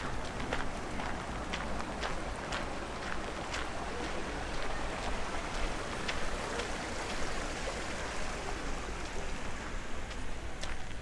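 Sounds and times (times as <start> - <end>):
footsteps crunching on a path: 0.0 - 7.4, 10.0 - 11.0.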